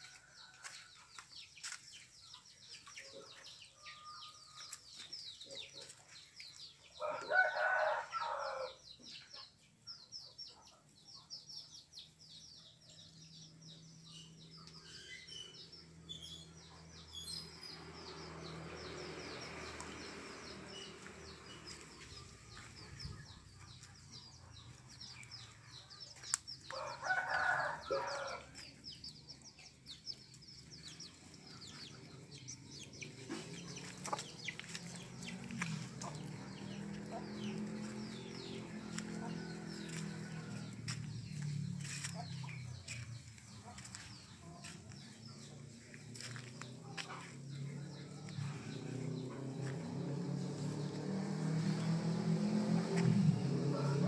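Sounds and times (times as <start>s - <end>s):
rooster crowing: 7.0s - 8.8s, 26.7s - 28.5s, 37.8s - 41.0s, 52.5s - 54.0s.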